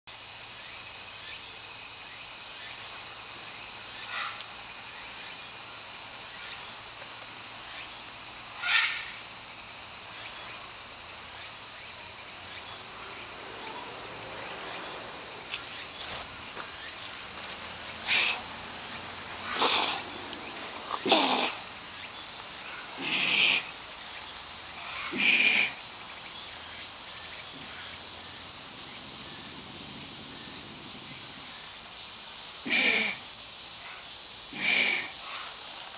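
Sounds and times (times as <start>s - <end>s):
high-pitched insect chorus: 0.1s - 35.9s
lynx huffing angrily: 18.0s - 18.5s, 19.4s - 20.3s, 20.9s - 21.7s, 23.0s - 23.8s, 34.5s - 35.2s.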